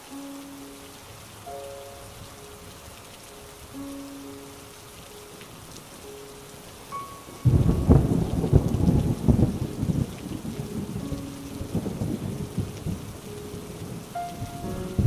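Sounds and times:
rain patter: 0:00.0 - 0:15.0
thunderclap rolling: 0:07.4 - 0:13.2, 0:13.8 - 0:15.0.

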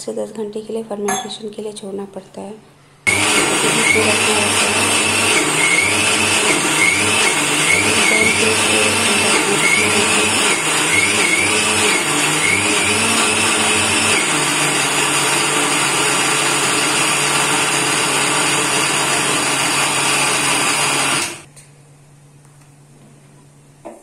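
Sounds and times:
mixer grinder running: 0:03.1 - 0:21.5.

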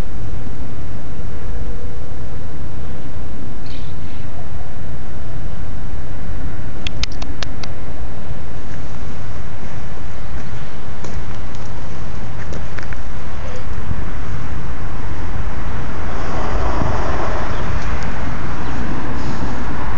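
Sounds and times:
road traffic rumble: 0:00.0 - 0:19.9
passing vehicle: 0:11.7 - 0:19.9.

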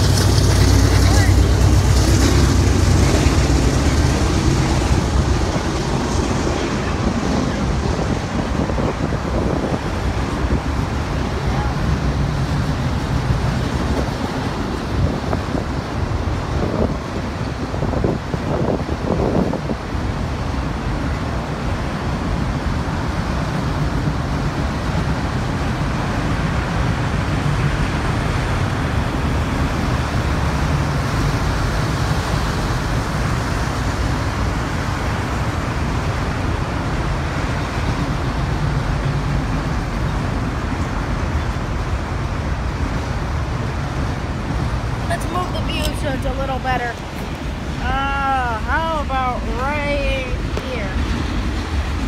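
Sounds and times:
train wheels rolling on rails: 0:00.0 - 0:17.5.

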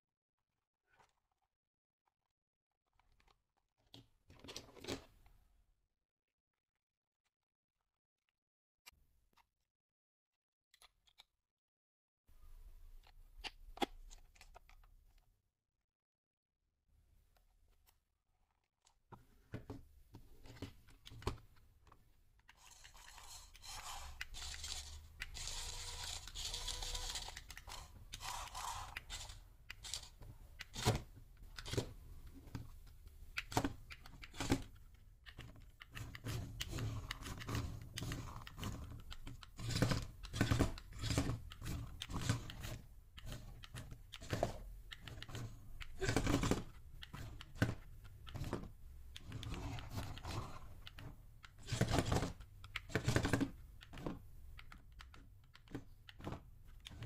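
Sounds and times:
toy car clattering: 0:22.5 - 0:30.8
small electric motors whirring: 0:22.6 - 0:30.2.

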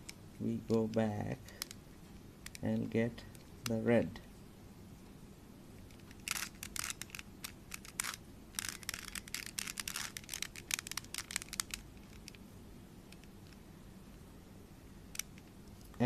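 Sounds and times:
puzzle cube clicking and rattling: 0:05.8 - 0:12.4.

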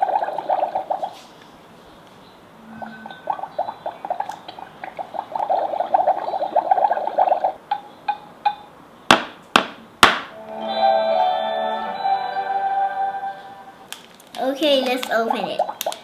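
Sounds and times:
electronic fizzing and bubbling: 0:00.0 - 0:01.2, 0:02.7 - 0:07.6
tinkly electronic melody: 0:02.6 - 0:03.8, 0:10.4 - 0:13.8.

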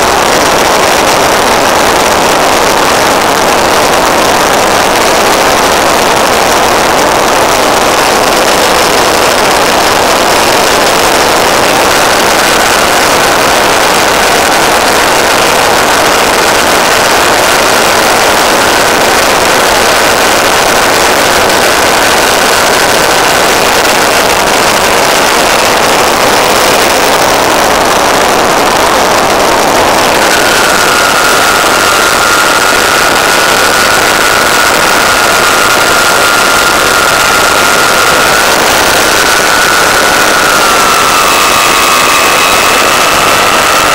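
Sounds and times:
faint thin whine: 0:00.0 - 0:43.9
electric motor and propeller: 0:00.1 - 0:43.9
rush of air: 0:21.2 - 0:43.9.

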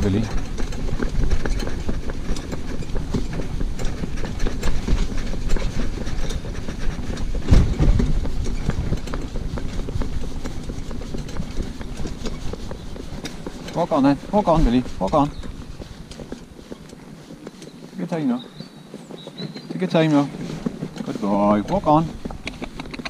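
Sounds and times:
low bump: 0:00.0 - 0:16.6
cart wheels rumbling and rattling: 0:00.0 - 0:23.0
pony hooves: 0:00.0 - 0:23.0.

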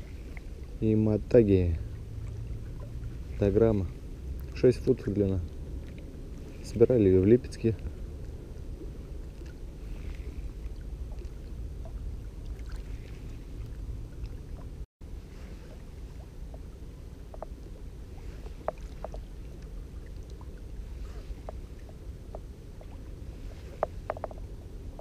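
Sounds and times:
water lapping at shore: 0:00.0 - 0:25.0
wind rumble on microphone: 0:00.0 - 0:25.0
faint ticks: 0:17.3 - 0:17.7, 0:18.4 - 0:20.6, 0:21.3 - 0:23.0, 0:23.6 - 0:25.0.

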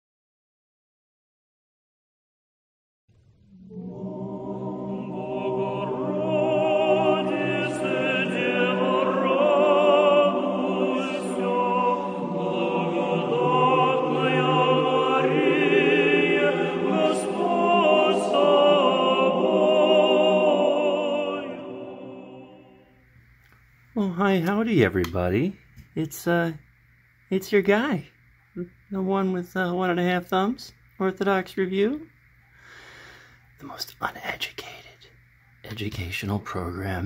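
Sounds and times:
choir singing held notes: 0:03.5 - 0:23.0.

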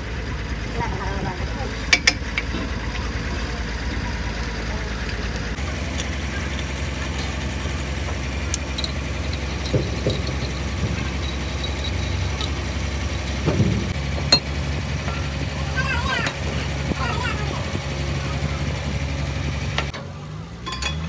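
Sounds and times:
engine idling: 0:00.0 - 0:21.0
metal clicks of wheel nuts: 0:01.9 - 0:03.0, 0:08.0 - 0:13.6, 0:20.6 - 0:21.0.

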